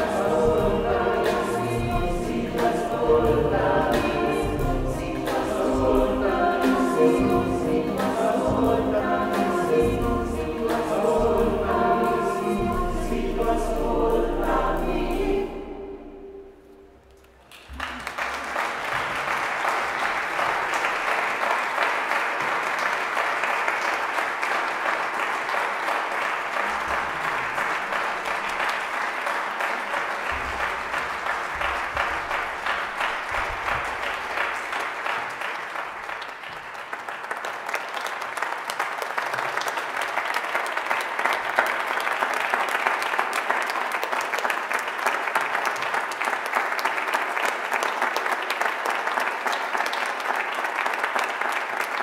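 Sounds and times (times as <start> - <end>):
audience applauding: 17.1 - 52.0.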